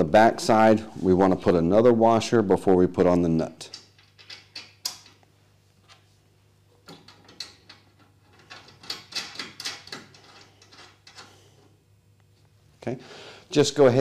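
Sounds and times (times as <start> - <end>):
metallic clicks of bolts and nuts: 3.6 - 5.2, 6.8 - 11.3.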